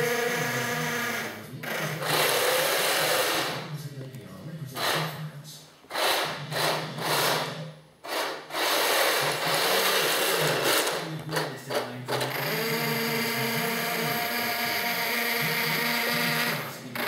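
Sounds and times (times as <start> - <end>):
electric motors whirring: 0.0 - 3.7, 5.9 - 17.0.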